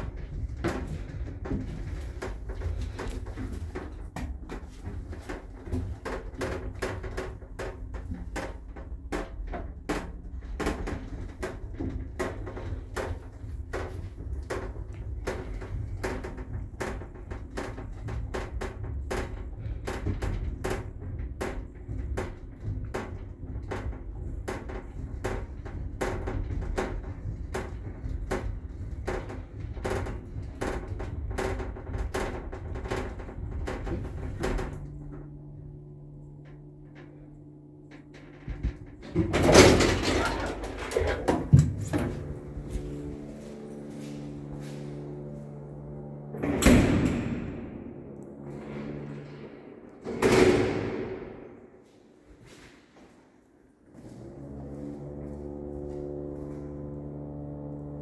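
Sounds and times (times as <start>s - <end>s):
steady hum: 11.2s - 51.9s.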